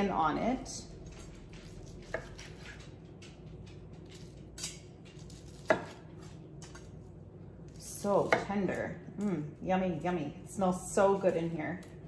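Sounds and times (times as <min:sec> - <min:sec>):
knife slicing on a cutting board: 0:01.6 - 0:02.8, 0:04.6 - 0:06.8.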